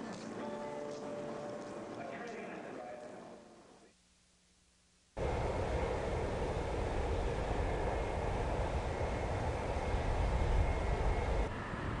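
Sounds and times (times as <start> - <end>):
faint high whine: 0.0 - 12.0
airfield rushing roar: 5.2 - 12.0.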